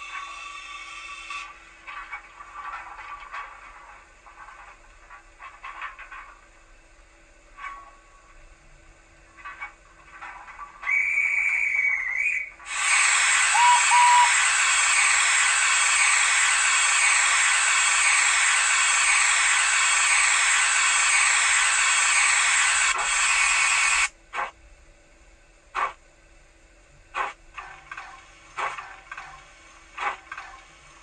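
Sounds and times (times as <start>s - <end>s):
loud hiss of steam: 0.0s - 1.6s, 11.0s - 24.5s
sharp steam chuffs: 0.0s - 1.9s, 10.9s - 24.6s, 25.8s - 26.0s, 27.1s - 27.4s, 28.2s - 31.0s
short train whistle: 10.9s - 15.2s.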